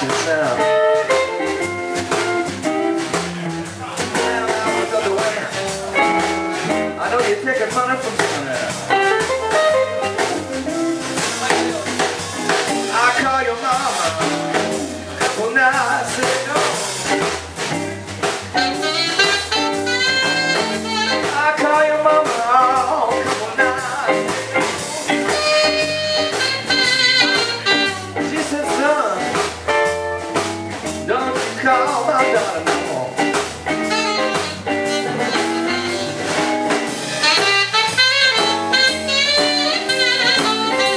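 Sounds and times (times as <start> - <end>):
electric bass: 0.0 - 40.9
electric guitar: 0.0 - 40.9
saxophone solo: 18.6 - 21.6, 25.1 - 28.3, 33.8 - 40.9.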